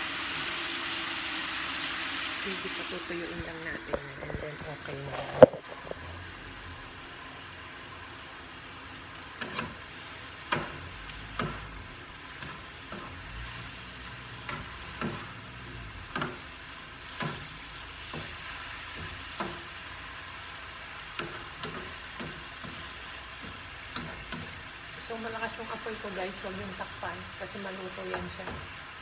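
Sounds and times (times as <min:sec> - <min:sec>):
vegetables sizzling in frying pan: 0:00.0 - 0:29.0
utensils scraping and knocking pan: 0:12.3 - 0:13.2, 0:21.1 - 0:24.6.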